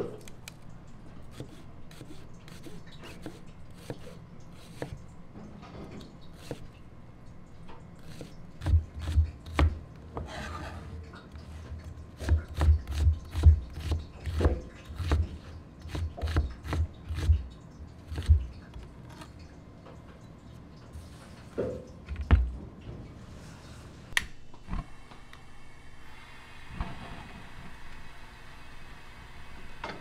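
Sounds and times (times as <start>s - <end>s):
knife scraping board: 1.3s - 5.0s, 6.4s - 6.6s, 8.0s - 11.0s, 12.2s - 17.3s
knife chopping on cutting board: 12.2s - 15.3s, 15.9s - 17.3s.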